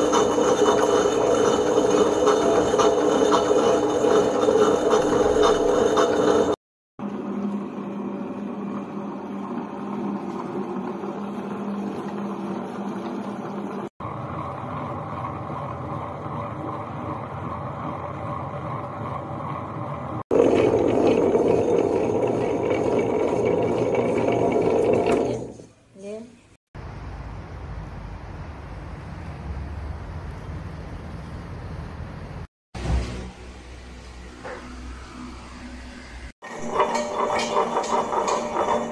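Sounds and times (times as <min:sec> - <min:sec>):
wet grinder motor humming: 0:00.0 - 0:25.7, 0:36.4 - 0:38.9.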